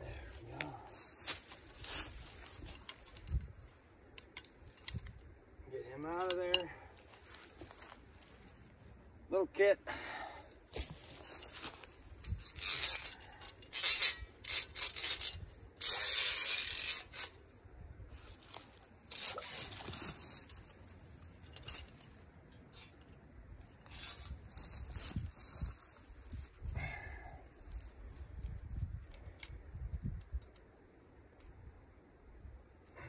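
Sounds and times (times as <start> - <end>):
dry leaves crunching and rustling: 0.5 - 2.8, 18.2 - 21.3
scraping and rubbing: 11.2 - 17.5, 18.3 - 23.0.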